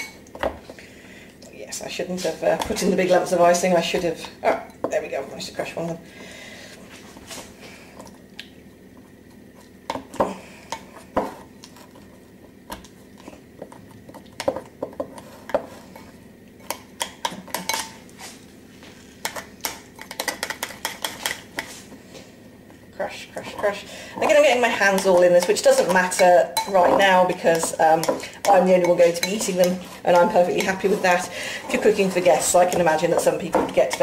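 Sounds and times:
spoon scraping glass bowl: 23.6s - 34.0s.

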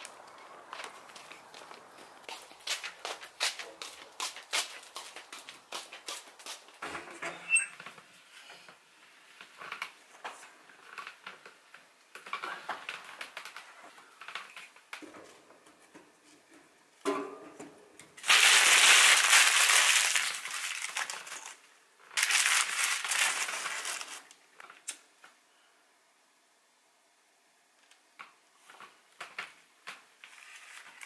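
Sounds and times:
loud crunching and rustling: 18.2s - 21.6s, 22.2s - 24.3s.

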